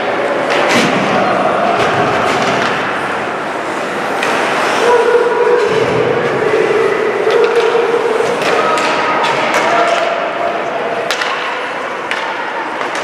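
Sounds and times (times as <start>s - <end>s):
voices in a rink: 0.0s - 13.0s
hockey sticks clacking on puck: 0.4s - 1.0s, 1.8s - 3.2s, 3.8s - 4.8s, 7.2s - 13.0s
skates on ice: 1.9s - 6.2s.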